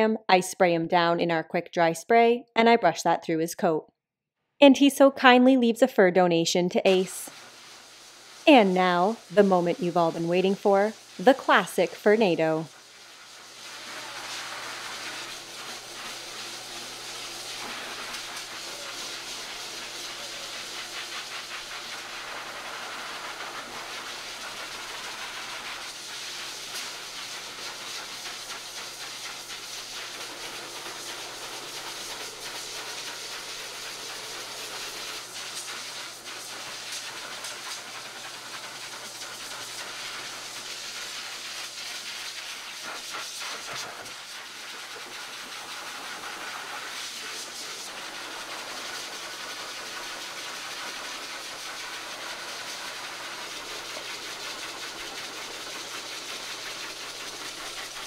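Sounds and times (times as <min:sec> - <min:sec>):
dog dryer blowing air: 0:06.9 - 0:58.0.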